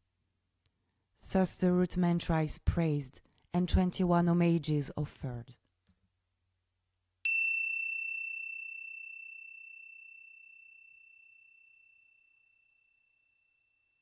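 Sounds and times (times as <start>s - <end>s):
small bell ringing: 7.3s - 14.0s.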